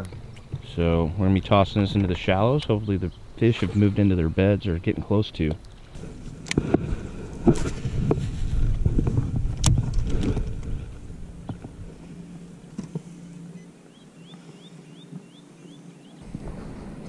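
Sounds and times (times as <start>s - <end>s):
steady low hum: 0.0s - 17.0s
bird chirping: 1.4s - 3.6s, 13.2s - 16.2s
rod handling and wind noise: 5.4s - 13.2s.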